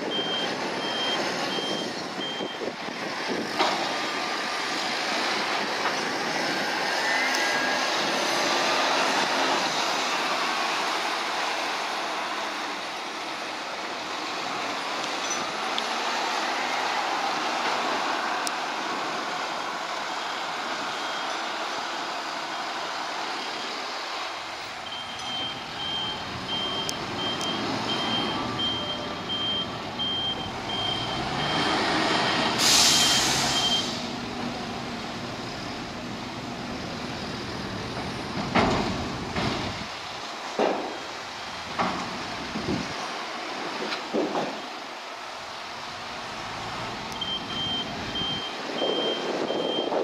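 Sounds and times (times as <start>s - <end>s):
vehicle warning beeper: 0.0s - 2.7s, 21.0s - 21.4s, 24.8s - 34.0s, 47.1s - 50.0s
diesel engine revving: 0.0s - 40.1s, 45.4s - 49.8s
air hiss: 32.5s - 34.2s.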